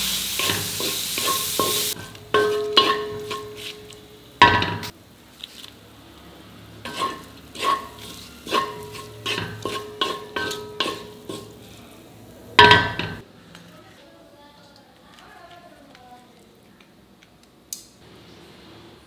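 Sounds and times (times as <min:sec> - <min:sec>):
faint frying sizzle: 0:00.0 - 0:17.0
spatula clinking on metal pan: 0:00.4 - 0:03.6, 0:06.9 - 0:11.5, 0:12.6 - 0:13.2.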